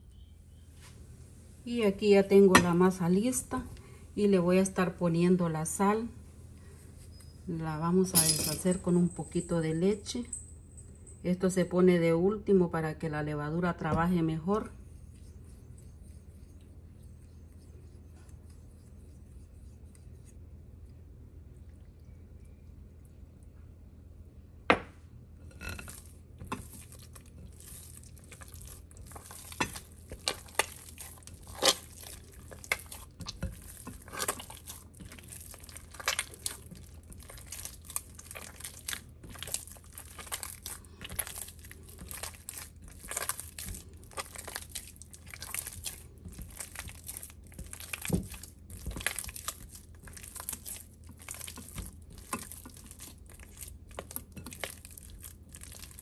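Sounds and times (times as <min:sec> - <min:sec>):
wet squelching of dough: 0:25.8 - 0:56.0.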